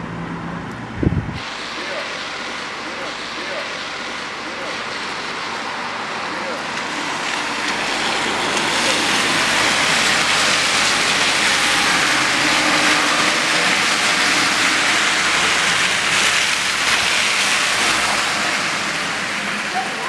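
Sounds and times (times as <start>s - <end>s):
traffic on wet street: 0.0s - 20.0s.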